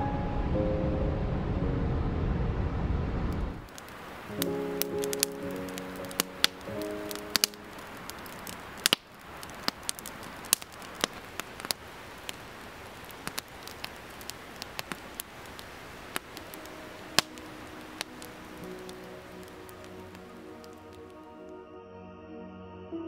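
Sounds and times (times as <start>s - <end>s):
campfire crackling and popping: 3.3s - 21.5s.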